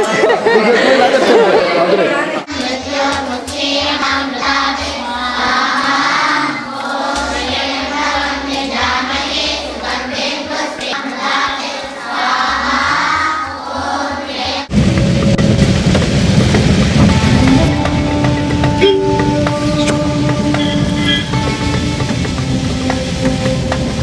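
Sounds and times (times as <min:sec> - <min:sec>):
voices singing a chant: 0:02.2 - 0:14.7
steady drone: 0:14.6 - 0:24.0.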